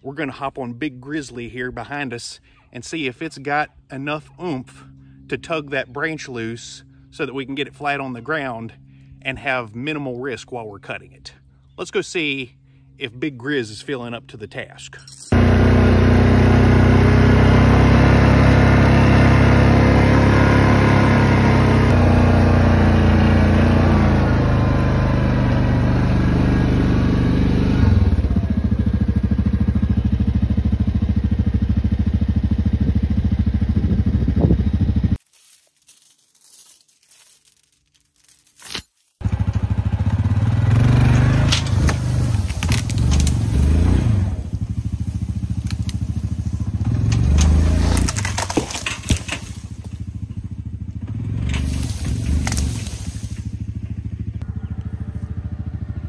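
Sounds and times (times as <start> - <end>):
atv engine running: 15.2 - 35.2, 39.2 - 56.0
tree limb cracking and scraping: 41.2 - 44.0, 44.8 - 50.1, 51.5 - 53.6.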